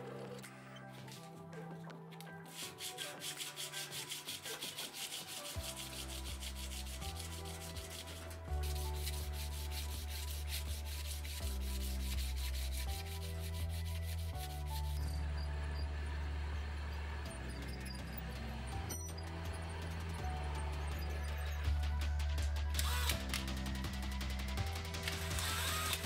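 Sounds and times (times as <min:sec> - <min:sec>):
background music with bass: 0:00.0 - 0:26.0
sandpaper rubbing on metal: 0:02.5 - 0:15.2, 0:25.0 - 0:26.0.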